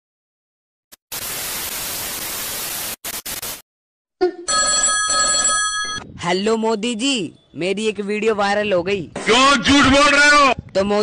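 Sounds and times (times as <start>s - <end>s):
loud static hiss: 1.0s - 3.6s
static crackles: 1.0s - 3.6s
mobile phone ringtone: 4.5s - 6.0s.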